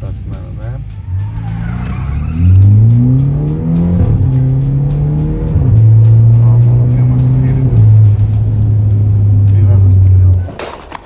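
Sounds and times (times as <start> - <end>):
car engine accelerating hard: 0.0 - 10.4.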